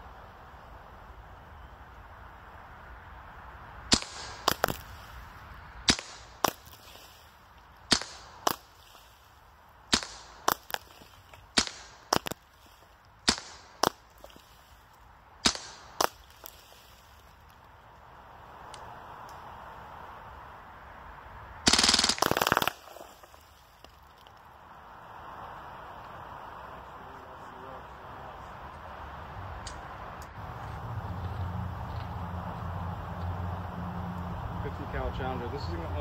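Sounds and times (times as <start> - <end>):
air rifle shots: 3.9 - 4.9, 5.8 - 7.1, 7.9 - 8.9, 9.9 - 12.4, 13.2 - 14.2, 15.4 - 16.6, 21.6 - 23.1.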